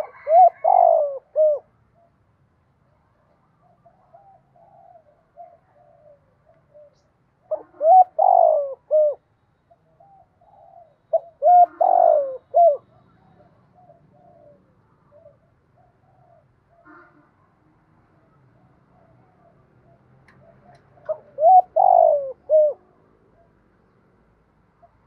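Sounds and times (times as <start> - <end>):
dove cooing: 0.0 - 2.1, 3.6 - 9.2, 9.8 - 17.0, 18.6 - 23.5.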